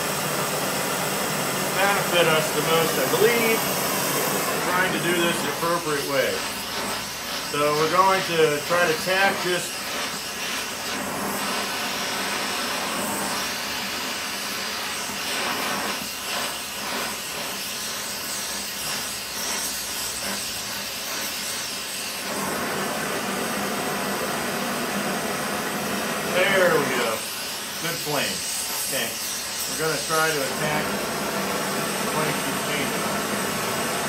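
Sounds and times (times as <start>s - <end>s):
gas torch flame hissing: 0.0s - 34.0s.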